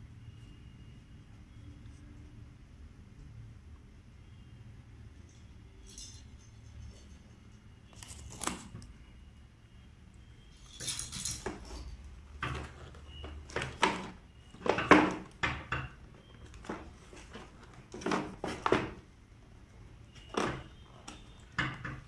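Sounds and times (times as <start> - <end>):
contents clattering: 10.5 - 19.0.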